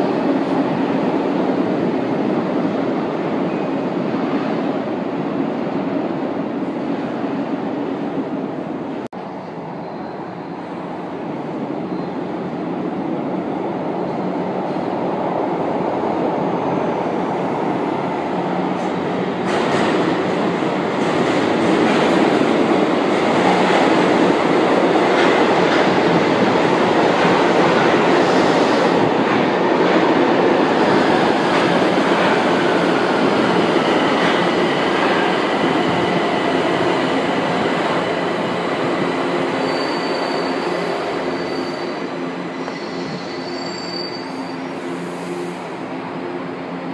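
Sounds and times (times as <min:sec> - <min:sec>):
train rumbling: 0:00.0 - 0:46.9
high train squeal: 0:09.2 - 0:12.4, 0:27.4 - 0:29.2, 0:37.9 - 0:46.2.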